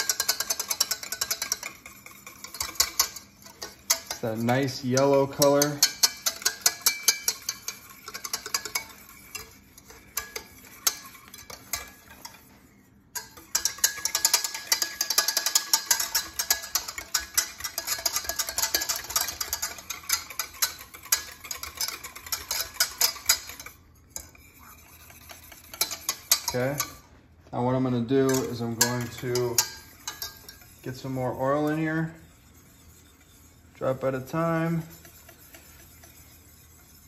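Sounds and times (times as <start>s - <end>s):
whisk clinking in metal pot: 0.0s - 37.0s.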